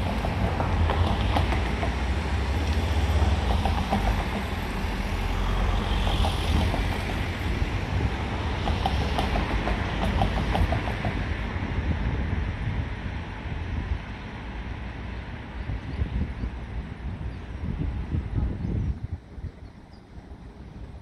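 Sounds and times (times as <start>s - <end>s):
tram running on rails: 0.0s - 21.0s.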